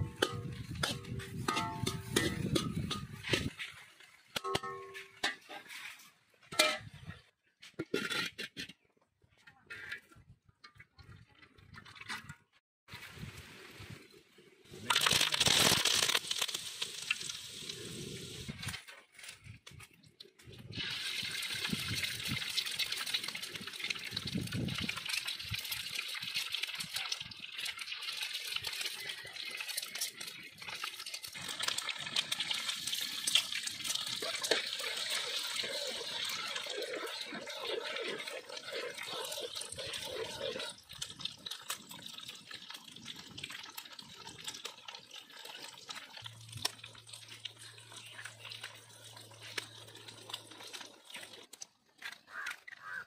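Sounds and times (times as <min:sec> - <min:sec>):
eggs sizzling in hot oil: 0:14.7 - 0:18.6, 0:20.7 - 0:51.6.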